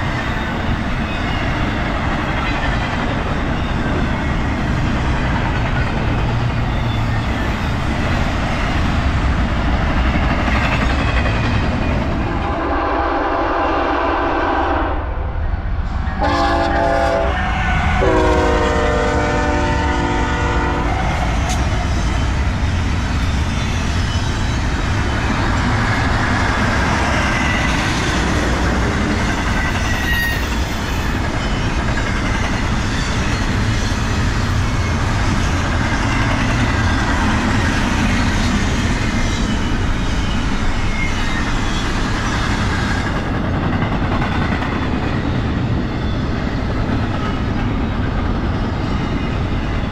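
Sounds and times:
train rumbling past: 0.0 - 49.9
train horn blasts: 12.4 - 15.3, 16.2 - 21.0.

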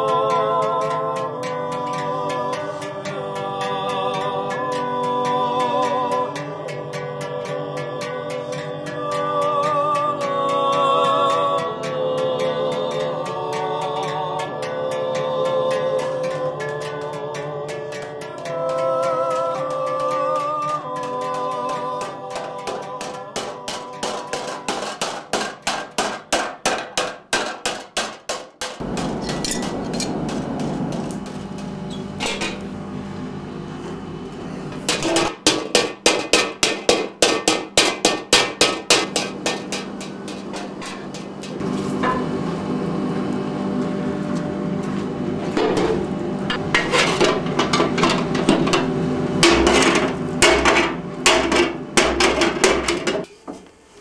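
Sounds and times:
hammer striking metal on anvil: 0.0 - 32.7, 34.7 - 42.4, 45.5 - 53.3.

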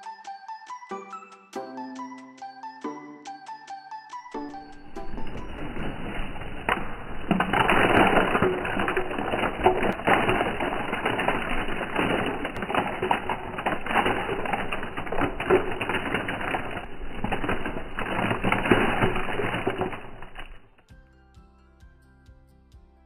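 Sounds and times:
chips falling into ceramic bowl: 4.5 - 20.8.

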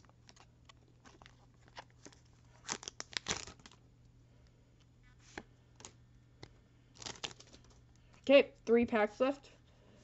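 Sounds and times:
foil wrapper tearing and crinkling: 0.0 - 3.8, 7.0 - 7.7.

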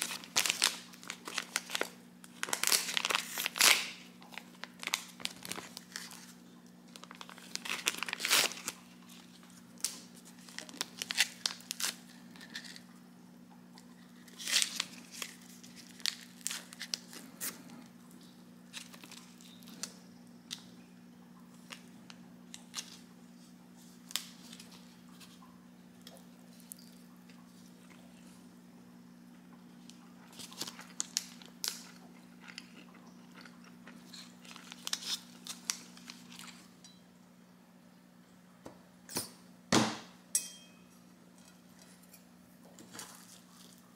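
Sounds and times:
plastic wrapper crinkling: 0.0 - 12.9, 13.8 - 20.7, 21.6 - 23.1, 23.8 - 25.4, 29.8 - 36.8.

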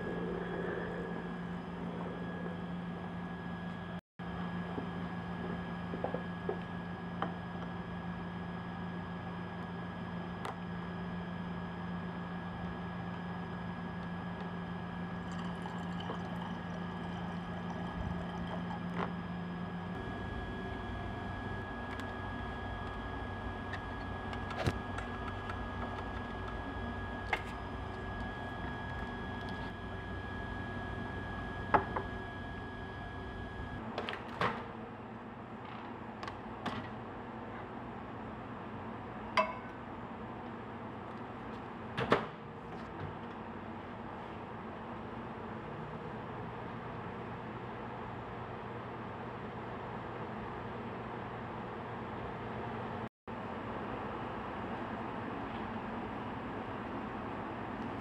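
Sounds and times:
low equipment hum: 0.0 - 47.5
water trickling into glass flask: 15.2 - 19.0.

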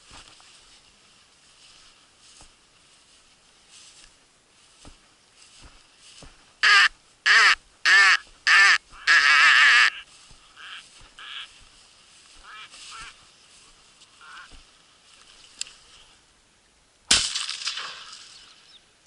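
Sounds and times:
ducks quacking: 6.6 - 11.7, 12.3 - 13.2, 14.2 - 14.6
shotgun shot: 17.1 - 18.2.

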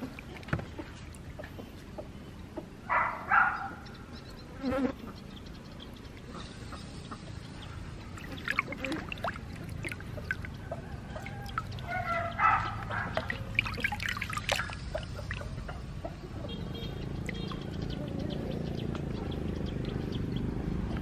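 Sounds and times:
water sloshing in a steel basin: 0.0 - 2.0, 7.3 - 18.0.

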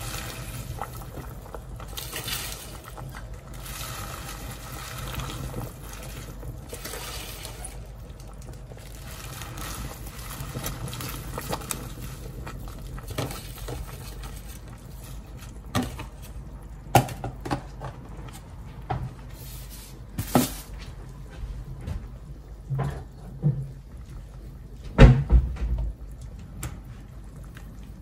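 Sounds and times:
low steady hum: 0.0 - 28.0.

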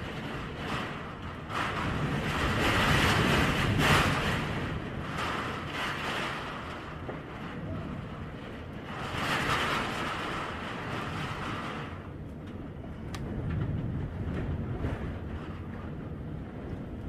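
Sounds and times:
wind gusting against house: 0.0 - 17.0.

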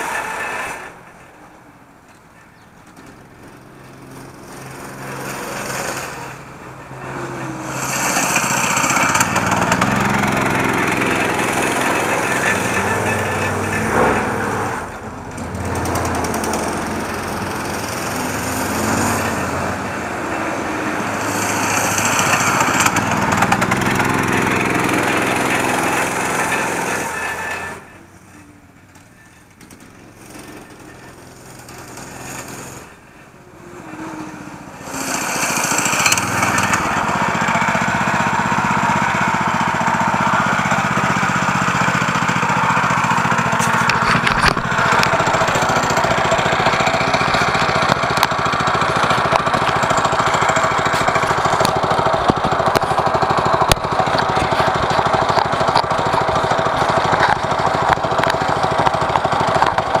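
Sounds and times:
minibike engine running: 0.0 - 60.0.

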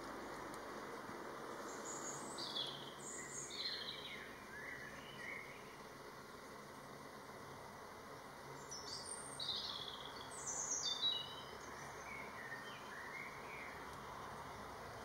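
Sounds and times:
background hiss: 0.0 - 15.0
songbirds singing: 0.0 - 15.0
soft bird chirps: 1.6 - 5.8, 8.5 - 14.0.

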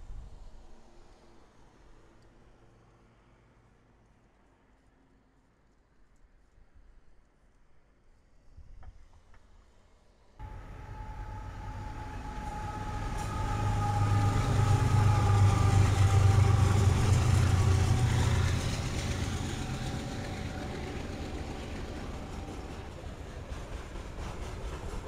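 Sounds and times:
faint high whine: 10.4 - 22.9
diesel locomotive engine rumble: 10.4 - 25.0
freight cars rolling on rails: 10.4 - 25.0.

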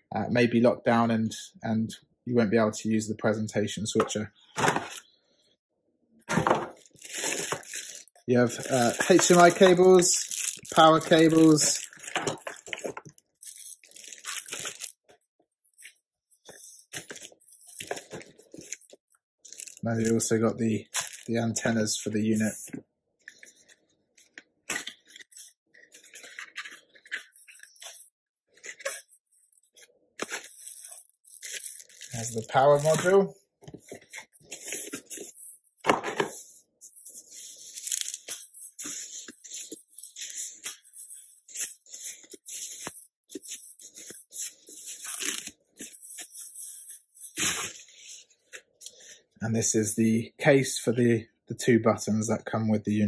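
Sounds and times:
cardboard rustling: 4.6 - 5.1, 6.3 - 15.0, 24.8 - 47.8
plastic packaging crinkling: 6.4 - 22.6, 23.4 - 48.1.

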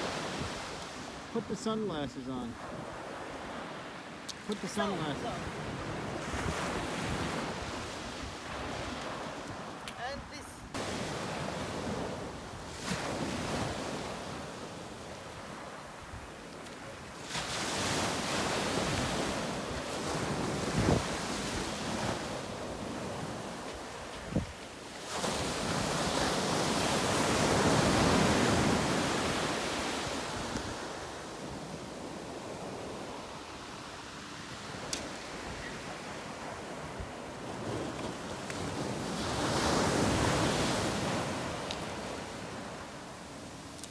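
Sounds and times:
ocean surf breaking: 0.0 - 43.9.

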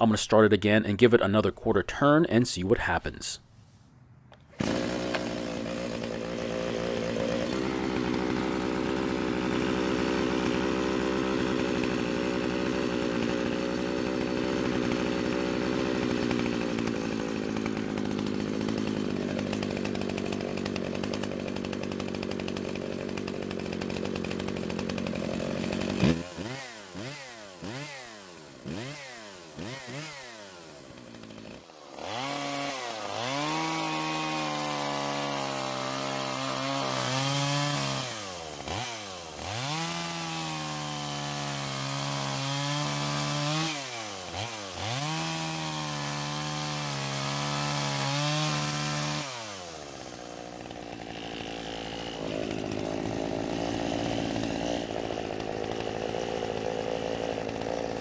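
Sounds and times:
chainsaw engine idling and revving: 4.2 - 58.0.

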